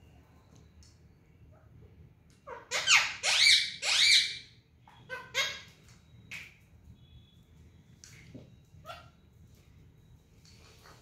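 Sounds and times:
parakeets squawking: 2.4 - 5.8.

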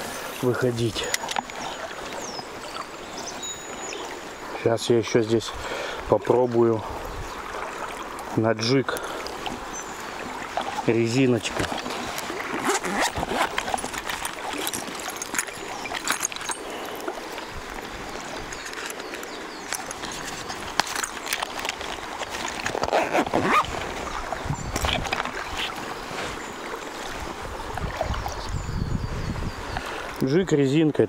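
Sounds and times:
river water flowing: 0.0 - 31.0.

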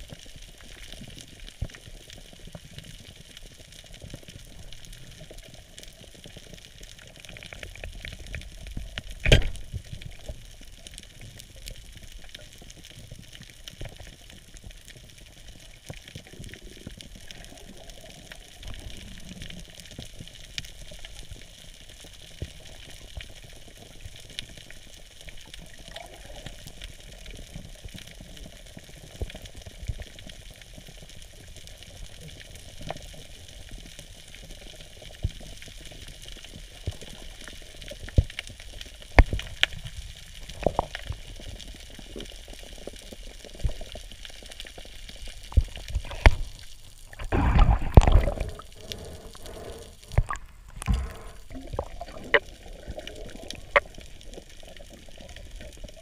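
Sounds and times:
underwater knocks: 47.1 - 48.6.

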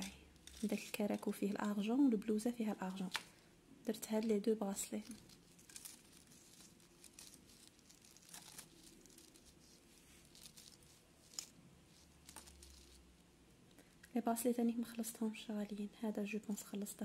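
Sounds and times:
rustling: 4.1 - 13.3.

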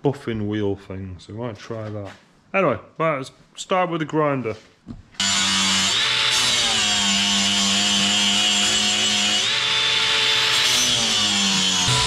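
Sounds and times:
angle grinder grinding metal: 5.2 - 12.0.

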